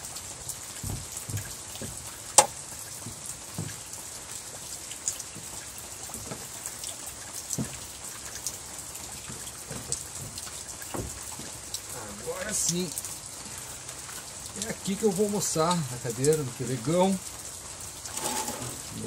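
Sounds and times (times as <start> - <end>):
water drips: 0.0 - 18.2
rain pattering: 0.0 - 19.0
soft knocks: 0.8 - 3.8, 9.7 - 11.5.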